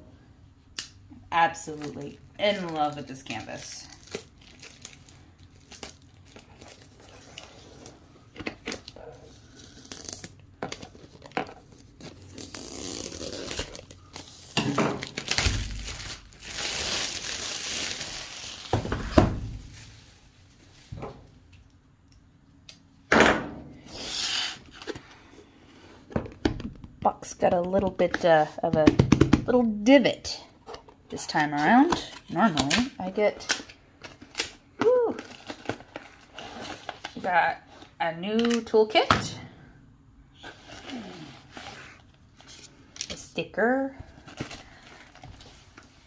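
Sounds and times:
plastic shrink wrap tearing: 12.0s - 18.9s.

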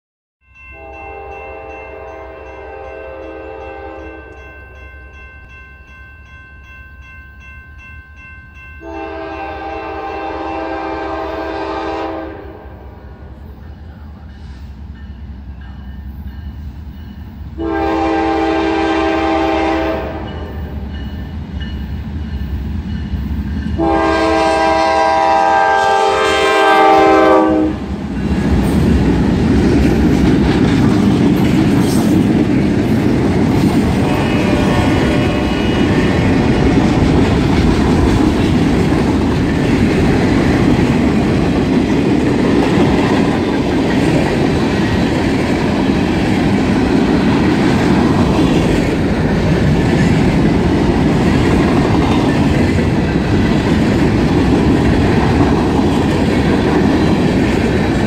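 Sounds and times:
locomotive horn blasts: 0.8s - 4.4s, 8.8s - 12.9s, 17.6s - 20.5s, 23.8s - 27.9s, 34.0s - 36.2s
diesel locomotives rumbling: 8.2s - 58.0s.

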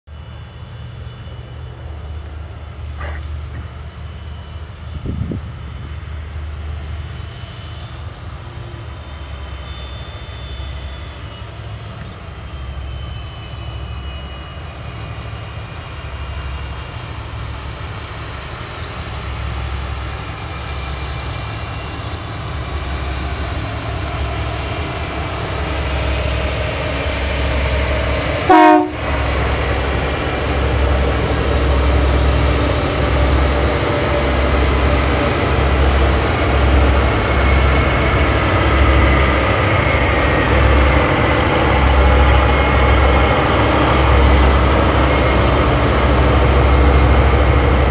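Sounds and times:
locomotive engine rumble: 0.1s - 47.9s
train horn blast: 28.4s - 29.3s.

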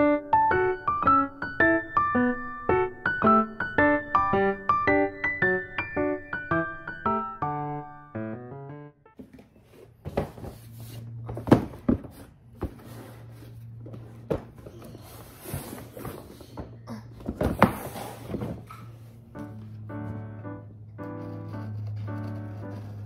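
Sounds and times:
cardboard box rustling and scraping: 9.3s - 16.6s.

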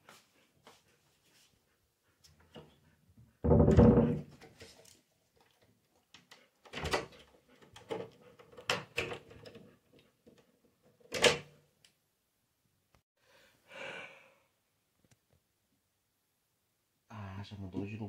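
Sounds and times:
wooden door knocks and clunks: 3.4s - 4.4s.

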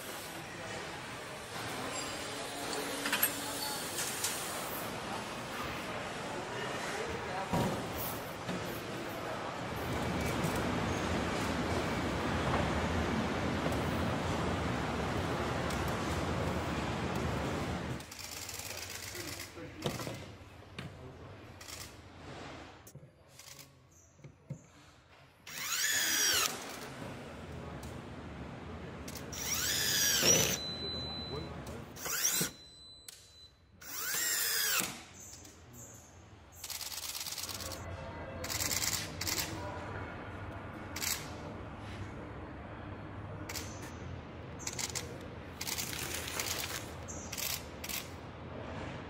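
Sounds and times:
low factory hum: 0.0s - 49.0s
power screwdriver motor whining: 25.5s - 26.5s, 29.4s - 30.6s, 32.0s - 32.6s, 33.8s - 34.9s.

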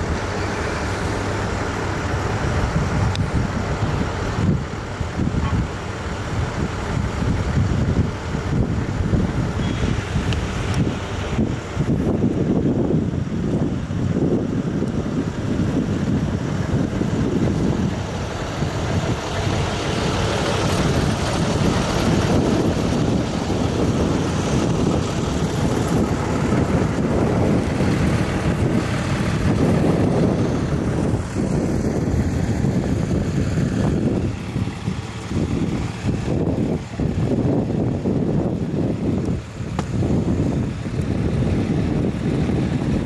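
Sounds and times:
wind buffeting microphone: 0.0s - 43.0s.

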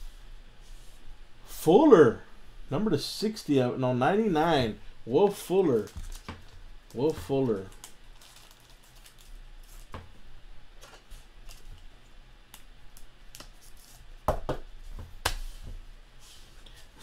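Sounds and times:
cards rustling in plastic sleeve: 5.5s - 10.0s.

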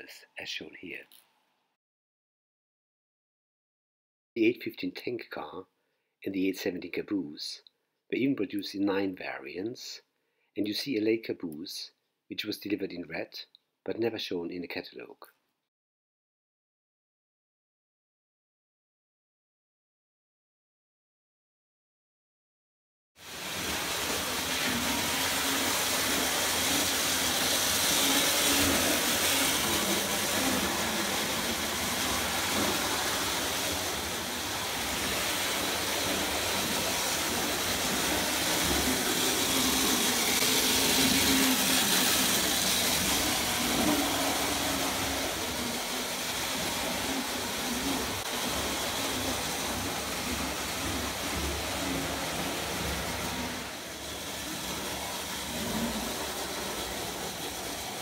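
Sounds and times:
toy train motor whir and rattle: 23.2s - 58.0s.

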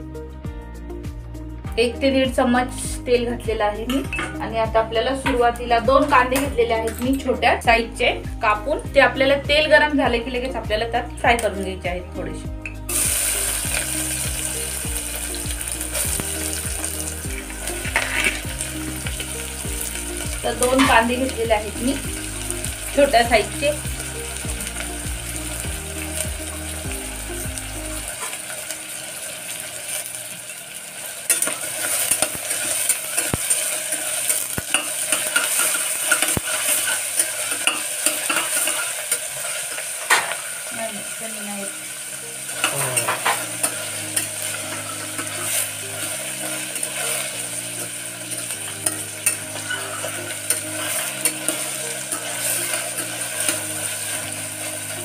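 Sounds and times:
onions sizzling in hot oil: 2.1s - 12.0s, 12.6s - 55.0s
metal spatula scraping a pot: 17.9s - 18.6s, 31.3s - 40.4s, 48.3s - 54.3s.

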